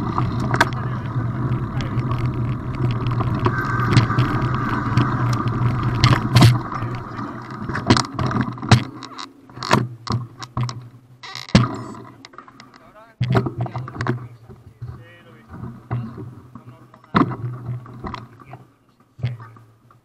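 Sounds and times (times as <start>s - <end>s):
bike tyres rumbling on gravel: 0.0s - 9.0s
wind on camera: 0.0s - 9.2s
sharp clicks and knocks: 0.0s - 20.0s.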